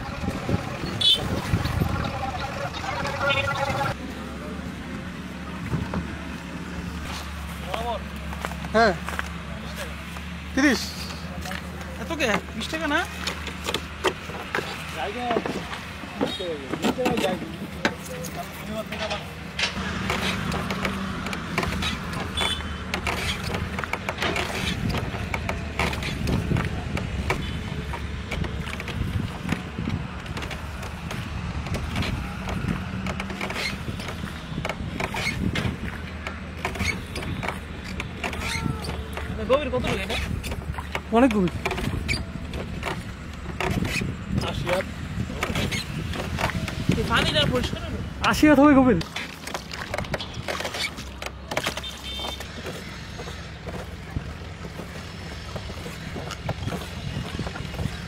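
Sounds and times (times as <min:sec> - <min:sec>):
wind buffeting microphone: 0:00.0 - 0:04.0, 0:24.7 - 0:48.4, 0:52.8 - 0:58.0
boat engine low rumble: 0:00.0 - 0:48.3, 0:49.3 - 0:58.0
oar knocking and splashing: 0:19.8 - 0:58.0.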